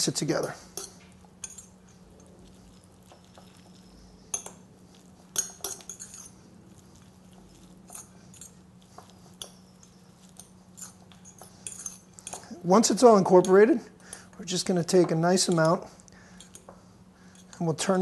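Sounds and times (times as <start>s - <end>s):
fork clinking on glass bowl: 0.4s - 6.3s, 7.6s - 12.5s.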